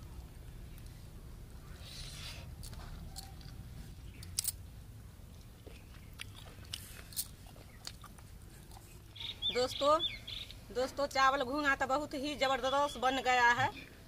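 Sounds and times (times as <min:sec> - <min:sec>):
person chewing: 0:05.3 - 0:09.1
mouth clicks and smacks: 0:05.4 - 0:09.0.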